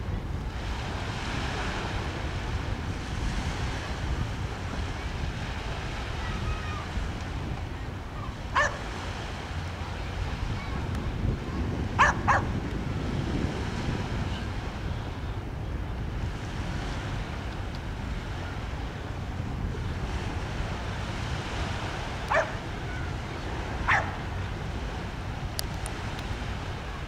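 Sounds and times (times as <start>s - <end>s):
wind rumble on microphone: 0.0s - 27.0s
dog barking: 8.5s - 8.8s, 12.0s - 12.5s, 22.3s - 22.6s, 23.8s - 24.2s.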